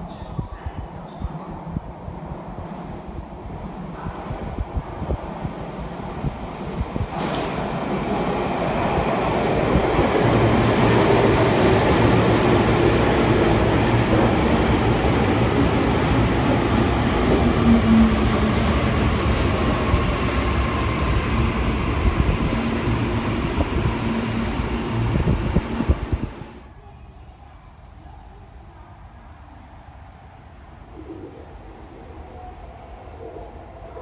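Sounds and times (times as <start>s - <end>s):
train wheels rumbling on rails: 2.6s - 26.7s.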